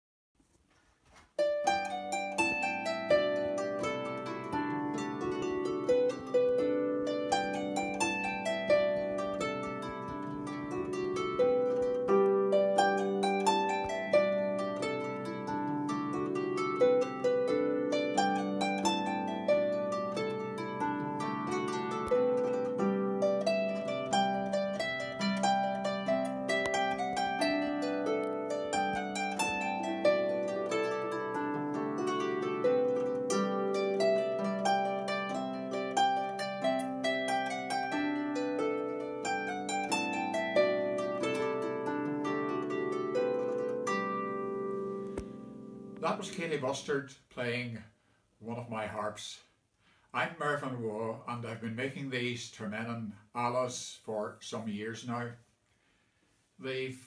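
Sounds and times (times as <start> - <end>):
harp plucked: 1.4 - 46.9.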